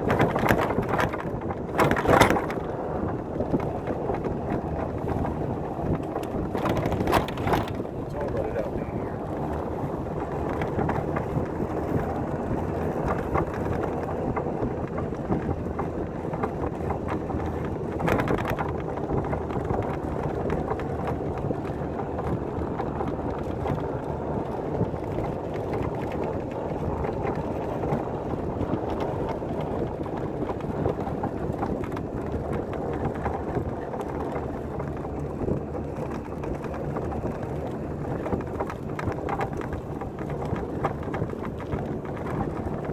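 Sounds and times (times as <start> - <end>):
golf cart running: 0.0 - 42.9
wind on microphone: 0.0 - 42.9.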